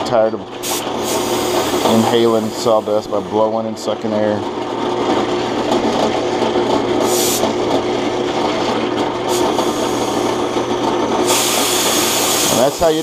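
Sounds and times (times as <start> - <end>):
compressed air blasts: 0.6 - 2.6, 7.0 - 7.6, 9.3 - 10.4, 11.2 - 12.9
drill press motor running: 0.6 - 13.0
endmill milling wood: 0.8 - 13.0.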